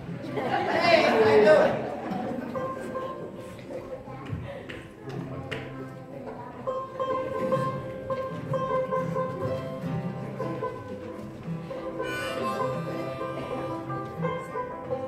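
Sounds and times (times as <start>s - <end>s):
mandolin: 0.0s - 15.0s
strummed acoustic guitars: 6.6s - 15.0s
harmonica long notes: 11.6s - 14.6s.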